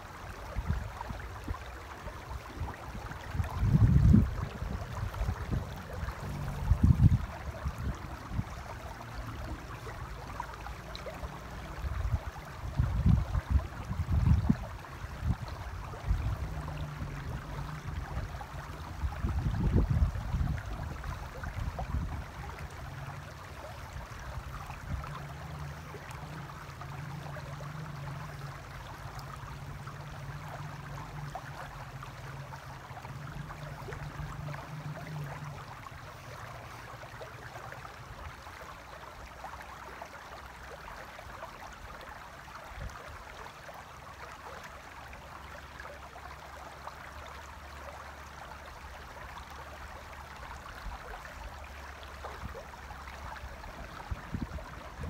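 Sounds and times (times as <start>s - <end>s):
low steady hum: 0.0s - 55.0s
river rushing over stones: 0.0s - 55.0s.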